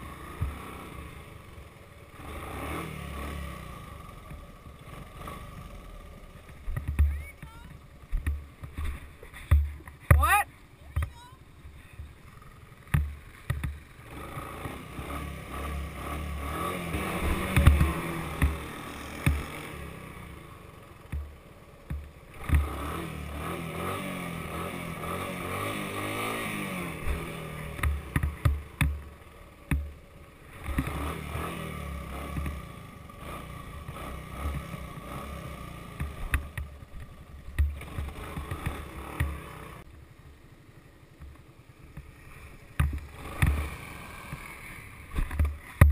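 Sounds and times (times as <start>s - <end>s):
three-wheeler engine revving: 0.0s - 45.9s
sharp thumps: 6.4s - 11.2s, 12.8s - 14.8s, 16.9s - 19.5s, 35.9s - 39.5s, 41.2s - 44.5s.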